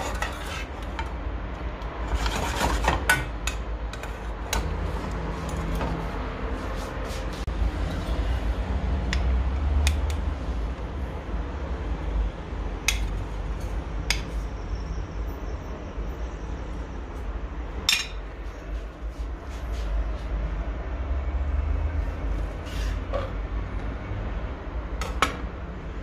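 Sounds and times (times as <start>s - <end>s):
utensils clinking against dishes: 17.8s - 18.4s.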